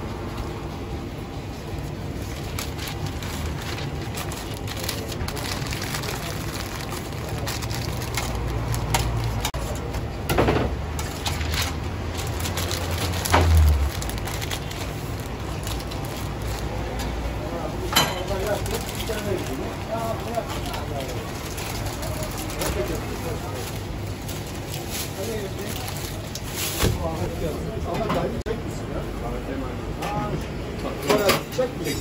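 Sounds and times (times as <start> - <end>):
paper wrappers crinkling: 1.9 - 10.0, 11.0 - 17.2, 18.3 - 27.3
steady low rumble: 11.5 - 16.8.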